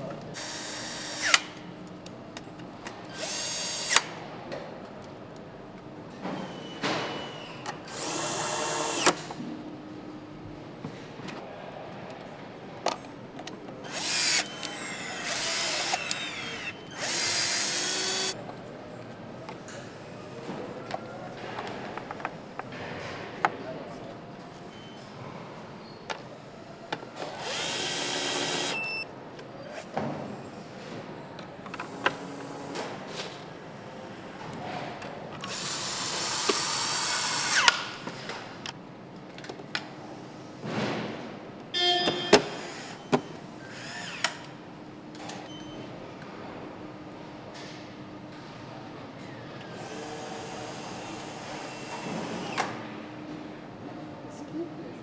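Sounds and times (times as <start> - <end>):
cordless drill driving a screw: 13.9 - 18.4, 27.4 - 29.0.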